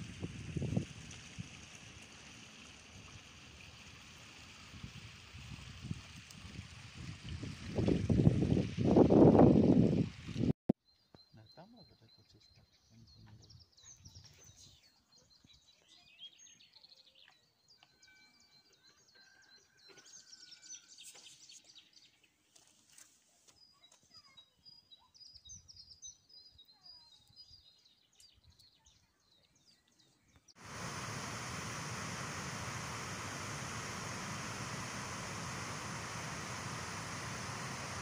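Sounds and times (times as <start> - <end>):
songbirds chirping and whistling: 10.9 - 22.4, 23.5 - 38.0
water rushing over weir: 30.6 - 38.0.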